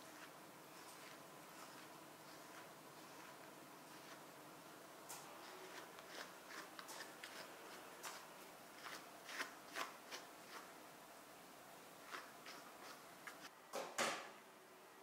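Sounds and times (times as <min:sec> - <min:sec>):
brush strokes through fur: 0:00.0 - 0:04.3.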